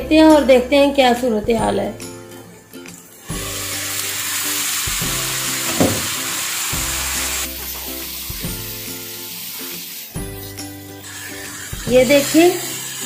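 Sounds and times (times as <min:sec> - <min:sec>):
mince sizzling in a pan: 0:03.0 - 0:13.0.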